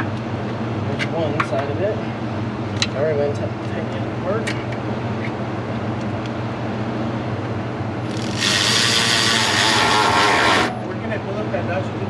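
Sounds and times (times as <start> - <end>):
shop tool hissing: 8.1 - 10.7.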